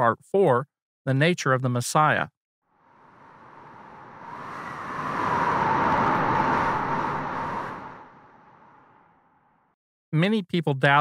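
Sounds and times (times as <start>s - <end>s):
rushing whoosh: 2.8s - 9.3s.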